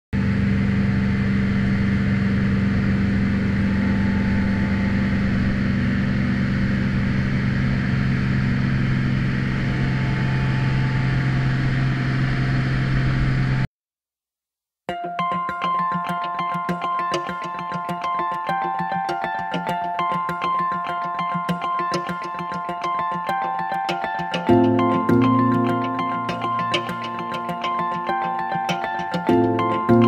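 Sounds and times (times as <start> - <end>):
motorboat engine running: 0.2 - 13.6.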